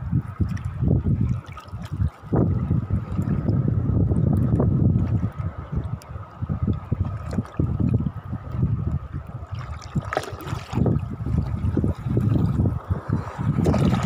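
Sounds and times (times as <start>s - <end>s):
low wind buffeting: 0.0s - 14.0s
seawater sloshing and lapping: 0.4s - 4.2s, 6.8s - 8.0s, 9.3s - 14.0s.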